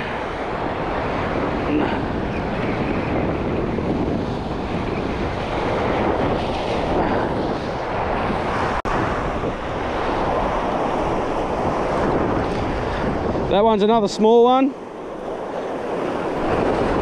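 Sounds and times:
wind buffeting microphone: 0.0 - 17.0
surf washing against rocks: 3.6 - 17.0.

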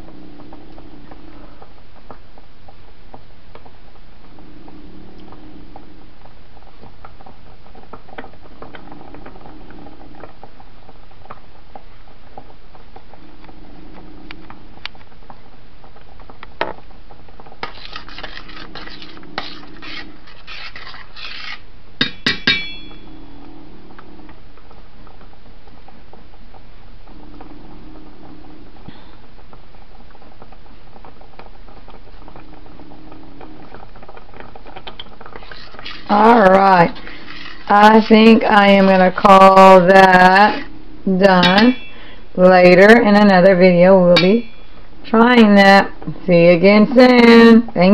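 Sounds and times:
spoon scraping through sauce: 17.6 - 21.6
spoon tapping on pot: 22.0 - 22.8.

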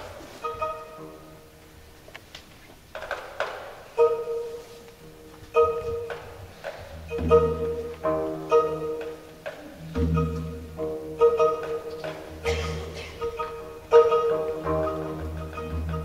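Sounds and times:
instrumental tune of struck notes: 3.9 - 16.0.

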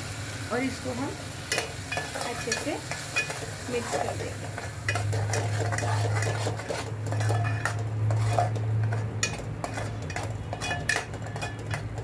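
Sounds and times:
metal spoon scraping a pot: 1.5 - 12.0.

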